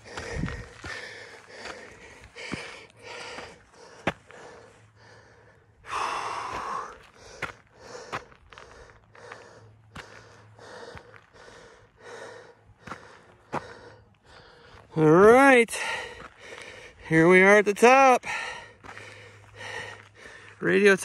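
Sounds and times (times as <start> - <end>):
person breathing heavily: 0.0 - 20.7.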